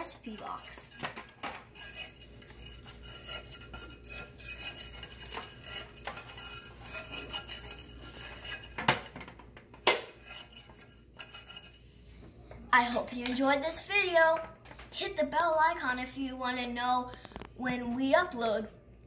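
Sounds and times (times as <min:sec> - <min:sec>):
utensil scraping metal cake pan: 0:00.0 - 0:09.2, 0:09.9 - 0:12.0.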